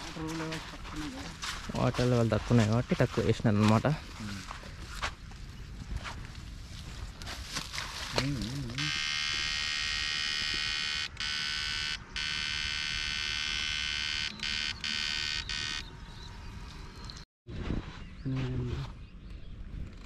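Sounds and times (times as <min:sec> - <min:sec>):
electrofishing unit buzzing: 0:08.6 - 0:16.4.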